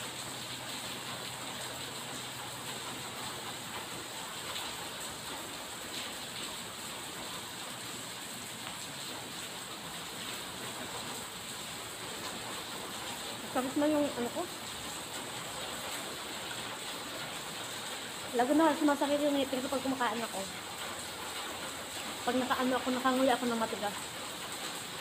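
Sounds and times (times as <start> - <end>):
steady rain falling: 0.0 - 25.0.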